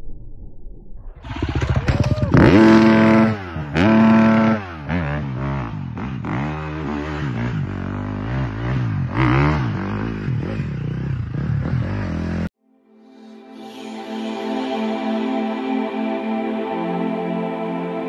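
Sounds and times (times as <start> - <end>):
dirt bike engine revving: 1.2 - 12.5.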